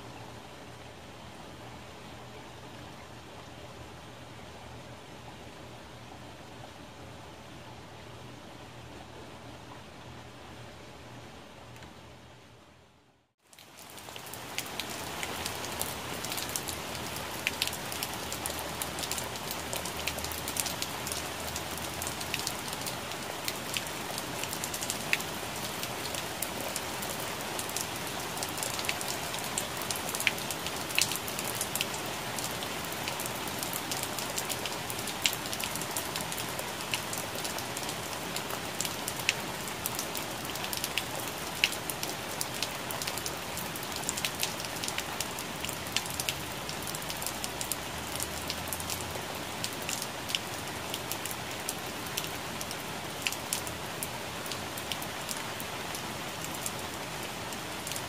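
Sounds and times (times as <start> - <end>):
rain falling on leaves: 13.4 - 58.0.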